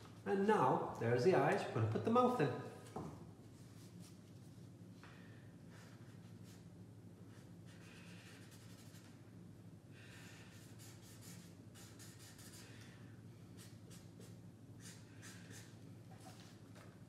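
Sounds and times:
pen scratching on paper: 7.3 - 9.1, 10.5 - 12.6.

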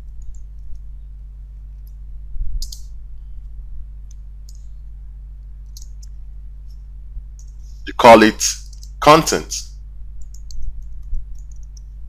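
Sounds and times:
low electrical hum: 0.0 - 12.0
keyboard keys clicking: 10.2 - 11.9.

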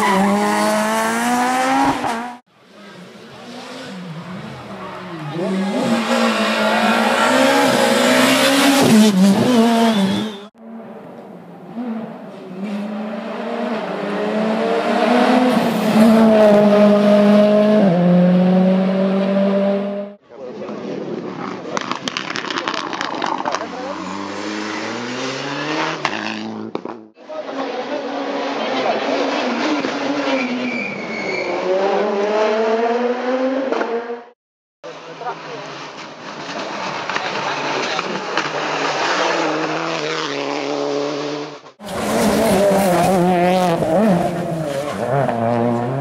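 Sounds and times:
rally car engine: 0.0 - 34.3, 34.9 - 46.0
rally car engine passing by: 36.6 - 46.0.

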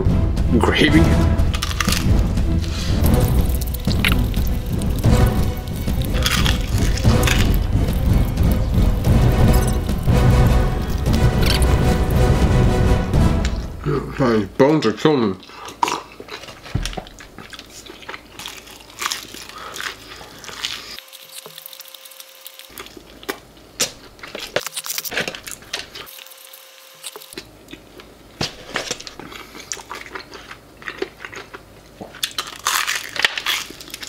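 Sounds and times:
chewing: 1.6 - 10.0, 15.3 - 26.3, 27.0 - 34.0
crunching fried chicken: 1.6 - 10.1, 15.3 - 34.0.

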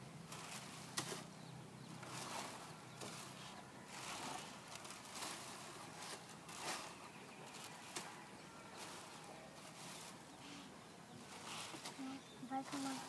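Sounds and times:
rattan being peeled: 0.3 - 1.3.

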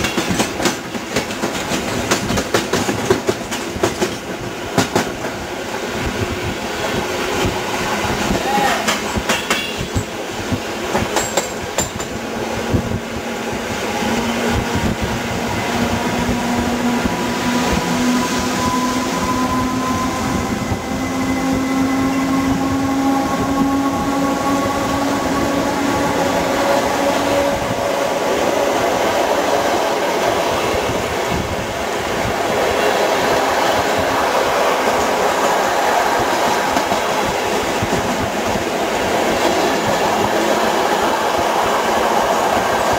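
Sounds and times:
clickety-clack over rail joints: 0.0 - 5.4, 6.1 - 12.2, 36.3 - 38.7
train wheels rumbling on rails: 0.0 - 42.9.

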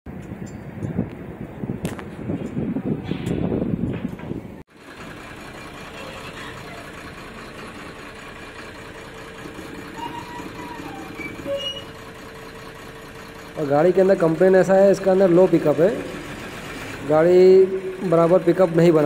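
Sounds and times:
diesel truck engine idling: 4.4 - 19.0.

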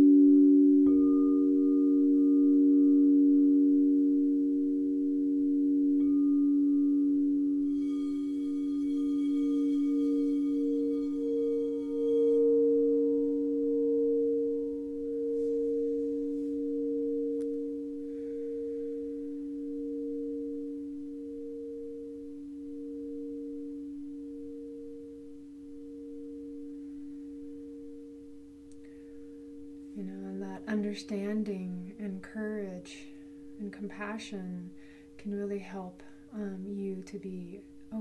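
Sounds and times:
singing bowl ringing: 0.0 - 32.0, 33.0 - 33.6.

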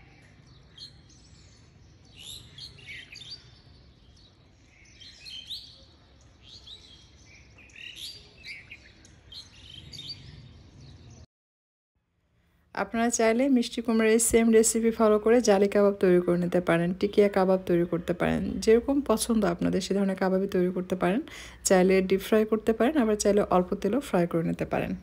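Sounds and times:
small birds chirping: 0.0 - 11.3.

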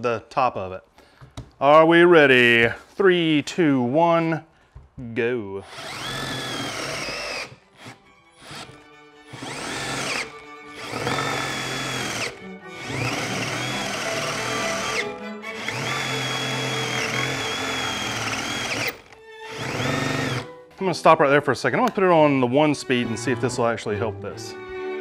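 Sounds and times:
drill motor whine: 5.6 - 20.5.

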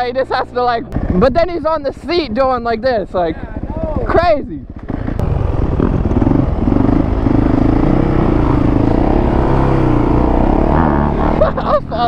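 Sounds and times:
dirt bike engine under throttle: 0.6 - 12.0.

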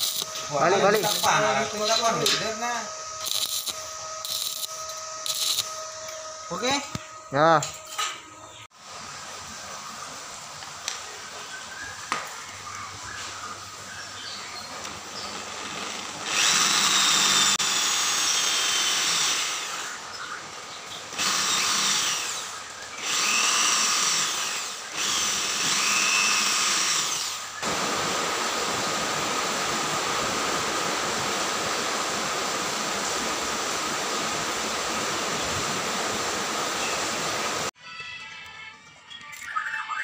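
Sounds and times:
steady hiss: 0.0 - 5.9, 27.5 - 37.7
electric hand drill boring wood: 0.0 - 6.9, 14.8 - 37.8.

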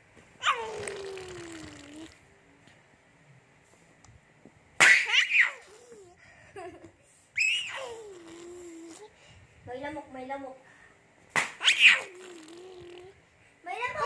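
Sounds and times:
baby squealing: 0.4 - 1.4, 4.8 - 5.9, 7.4 - 8.9, 11.6 - 13.1.

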